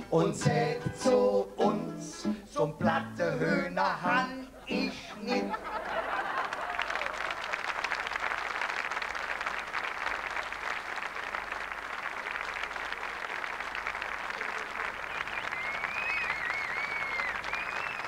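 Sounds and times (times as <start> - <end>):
audience applauding: 5.5 - 18.0.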